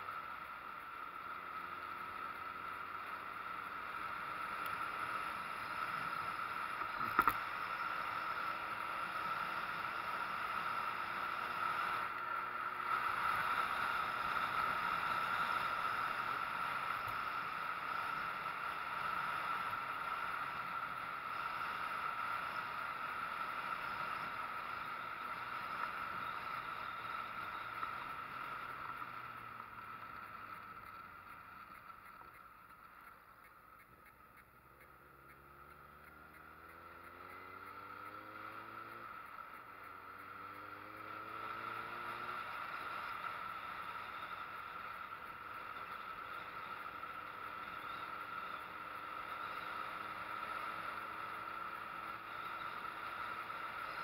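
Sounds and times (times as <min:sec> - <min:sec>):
faint motorcycle engine: 0:00.0 - 0:54.0.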